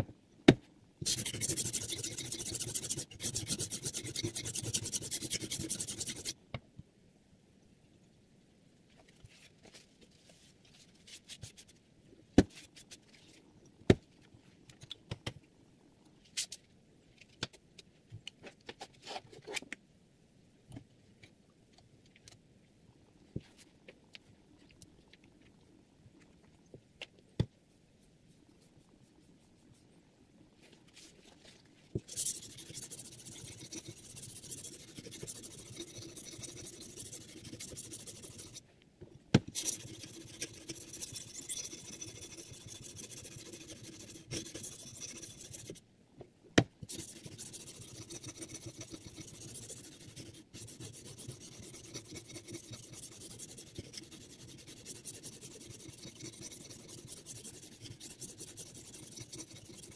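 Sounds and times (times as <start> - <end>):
sharpening stone rasping on blade: 1.0 - 6.3, 32.1 - 38.6, 39.6 - 45.8, 46.9 - 59.9.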